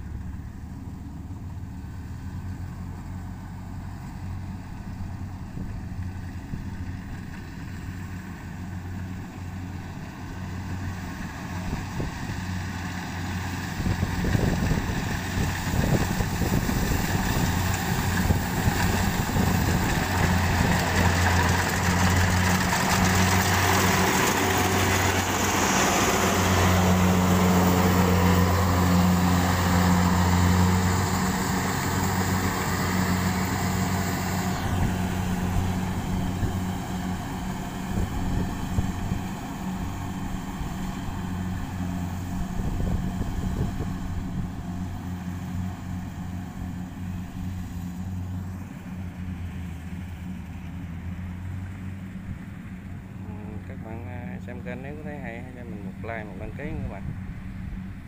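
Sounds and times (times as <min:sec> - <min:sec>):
diesel engine hum: 0:00.0 - 0:58.0
rushing cutter and threshing drum: 0:11.5 - 0:47.8.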